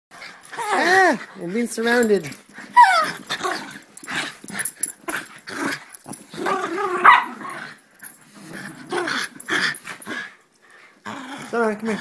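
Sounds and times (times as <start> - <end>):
dogs growling and yipping: 0.2 - 12.0.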